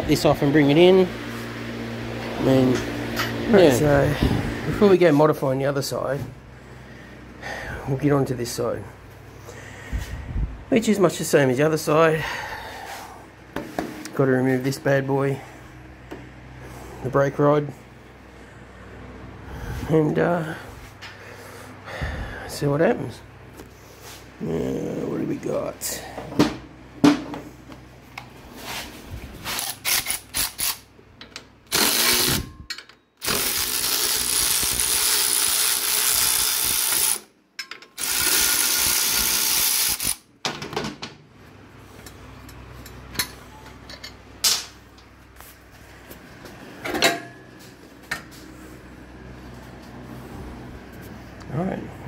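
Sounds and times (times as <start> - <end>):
power tool running: 29.5 - 30.9, 31.7 - 32.5, 33.2 - 37.3, 38.0 - 40.3.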